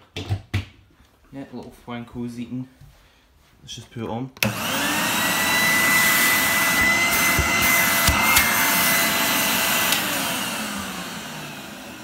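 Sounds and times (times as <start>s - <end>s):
vacuum cleaner motor whining: 4.4s - 12.0s.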